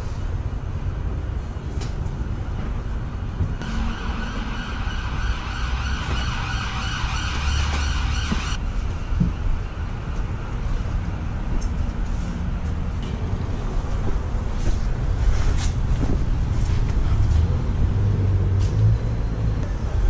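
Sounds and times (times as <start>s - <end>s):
steady low rumble: 0.0s - 18.4s
high-pitched siren: 3.6s - 8.6s.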